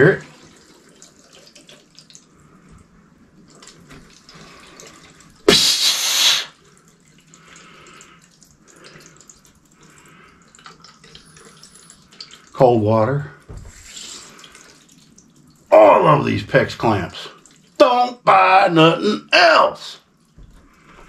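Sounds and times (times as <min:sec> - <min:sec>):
water hissing through pipes: 0:00.0 - 0:21.0
person sneezing: 0:05.5 - 0:06.6.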